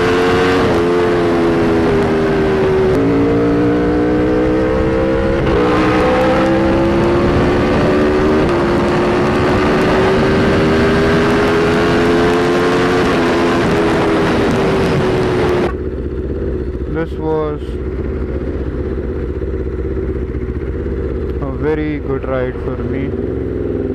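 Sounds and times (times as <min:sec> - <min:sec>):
motorcycle engine pulling hard: 0:00.0 - 0:23.9
traffic: 0:00.0 - 0:23.9
wind rush: 0:04.2 - 0:15.8.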